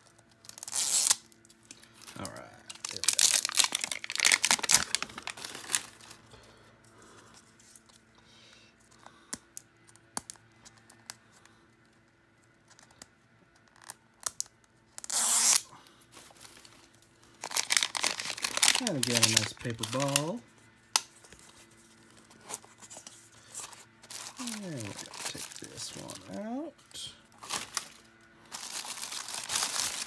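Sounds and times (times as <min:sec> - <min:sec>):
paper tearing and crinkling: 0:02.2 - 0:06.1, 0:17.4 - 0:20.4, 0:24.1 - 0:26.3, 0:27.4 - 0:30.0.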